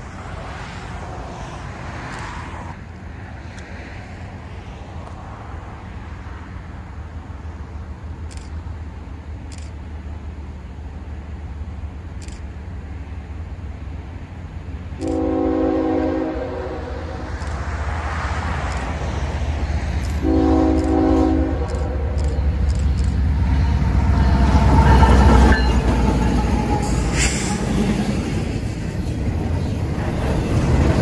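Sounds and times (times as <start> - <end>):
train engines and wheels rumbling: 0.0 - 31.0
train air horn blasts: 15.0 - 17.4, 20.2 - 22.3.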